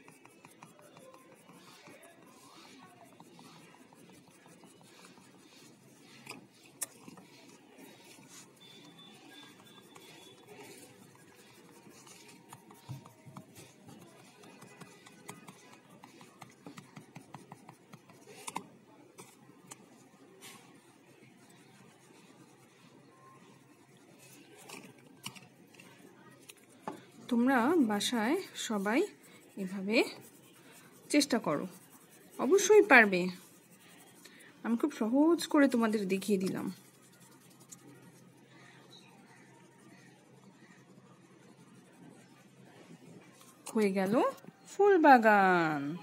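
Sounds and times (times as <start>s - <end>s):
crayon tapping on paper: 0.0s - 2.3s, 11.6s - 18.6s
crayon scraping on paper: 0.0s - 38.5s, 39.3s - 42.6s.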